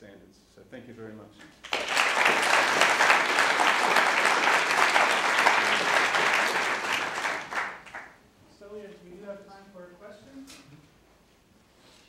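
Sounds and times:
audience applauding: 0:01.6 - 0:08.2.

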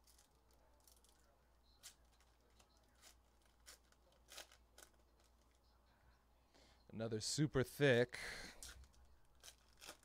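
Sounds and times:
trading cards being handled: 0:00.0 - 0:05.8, 0:08.6 - 0:10.0.

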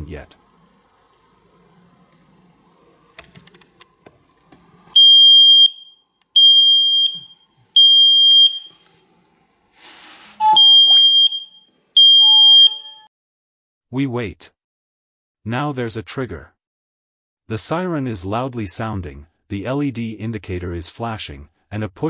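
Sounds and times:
smoke alarm beeping: 0:04.9 - 0:08.9, 0:10.4 - 0:13.1
short hiss: 0:09.8 - 0:10.4.

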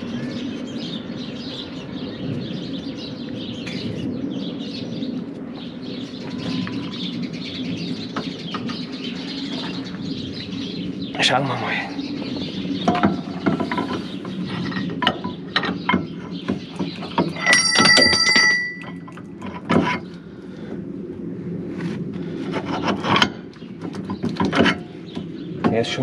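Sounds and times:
steel ringing like a bell: 0:17.4 - 0:19.1.

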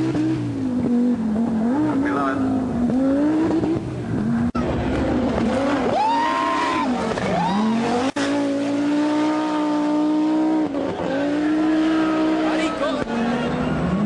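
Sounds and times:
rally car engine at full pace: 0:00.0 - 0:14.0.

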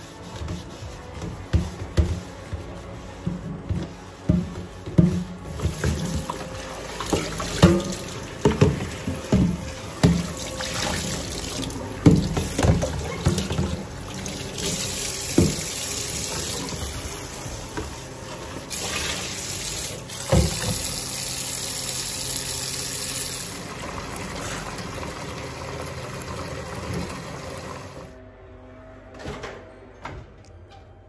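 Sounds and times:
tap water running into sink: 0:05.5 - 0:18.0, 0:18.6 - 0:28.1.

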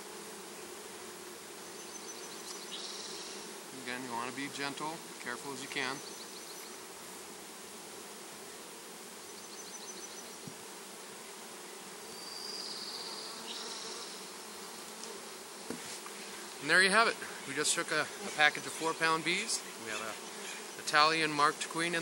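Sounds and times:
bees buzzing: 0:00.0 - 0:22.0.

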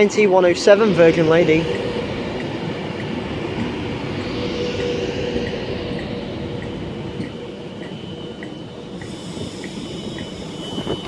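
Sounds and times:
faint steady whine: 0:00.0 - 0:11.0
train wheels rumbling: 0:00.0 - 0:11.0.

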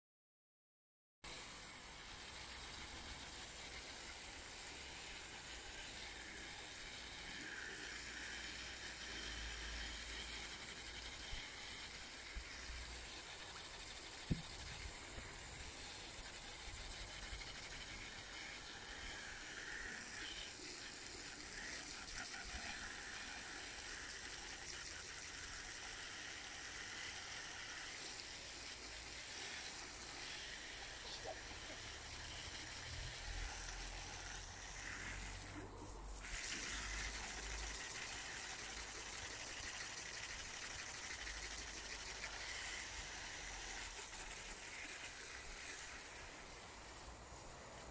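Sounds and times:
hose water jet hissing: 0:01.3 - 0:47.9.

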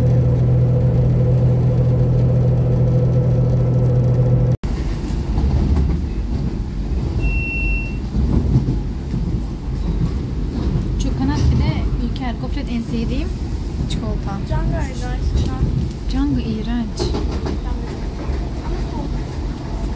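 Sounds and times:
bus engine drone: 0:00.0 - 0:17.0
rough rumble of bus ride: 0:00.0 - 0:19.9
short high beep: 0:07.2 - 0:08.1.

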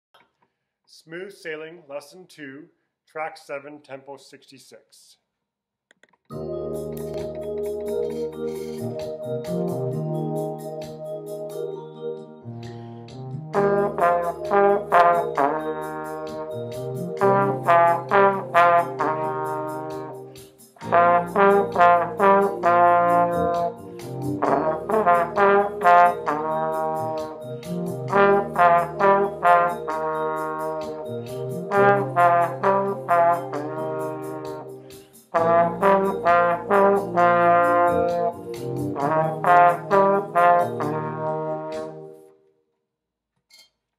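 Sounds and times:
backing track with low notes: 0:06.3 - 0:42.1
trombone playing slow melody: 0:13.0 - 0:42.3.

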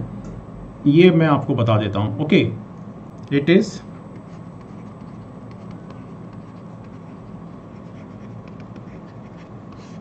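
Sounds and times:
low room hum: 0:00.0 - 0:10.0
stylus scratching on tablet: 0:03.9 - 0:10.0.

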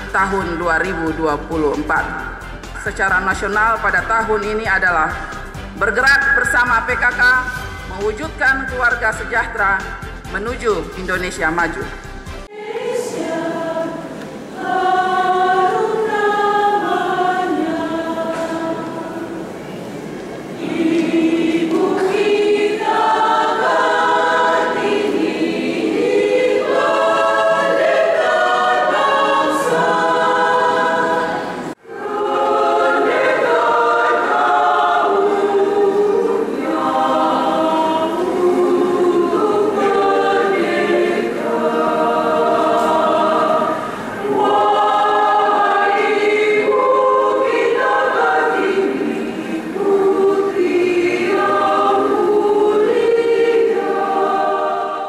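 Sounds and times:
choir singing: 0:12.4 - 0:55.0
women's choir singing: 0:12.4 - 0:55.0.

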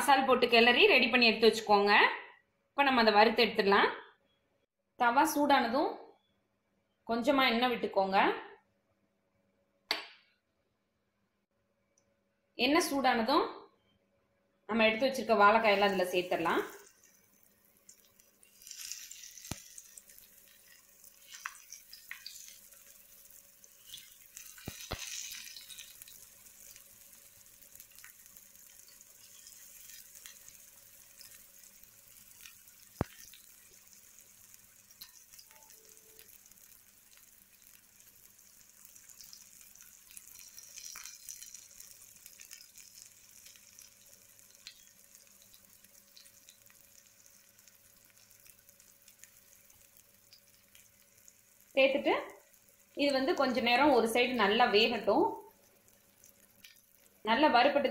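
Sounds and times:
banana slices sizzling in oil: 0:14.9 - 0:57.9.

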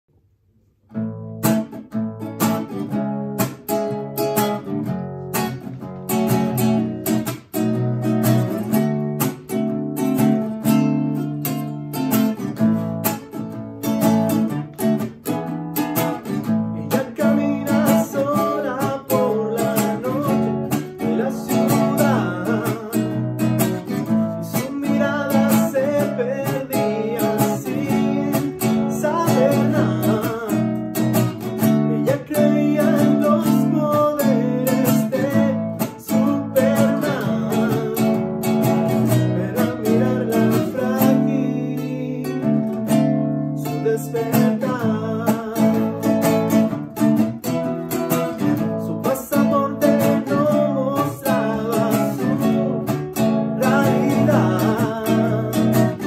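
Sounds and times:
classical guitar playing: 0:00.9 - 0:56.0
man singing: 0:16.1 - 0:56.0.

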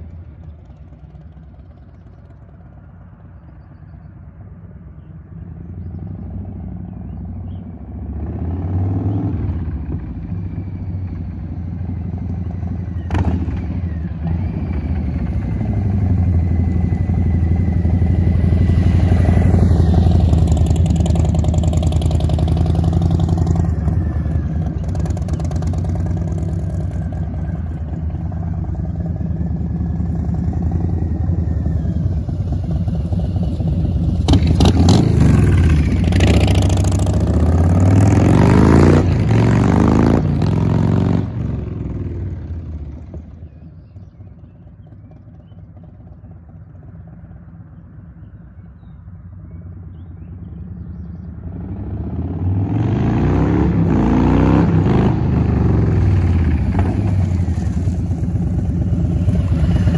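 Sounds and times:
motorcycle revving: 0:05.6 - 0:59.9.

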